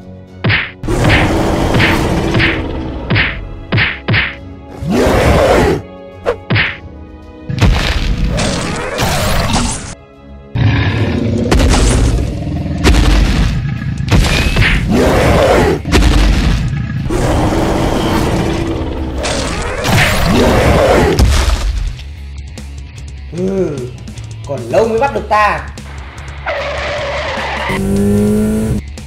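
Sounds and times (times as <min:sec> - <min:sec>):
action background music: 0:00.0 - 0:29.0
heavy booming hits: 0:11.5 - 0:14.9, 0:15.8 - 0:17.0.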